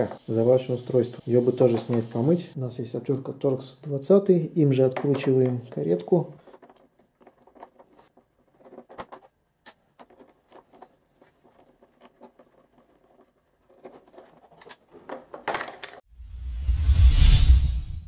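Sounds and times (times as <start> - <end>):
screwdriver and plastic clicks: 4.9 - 8.0.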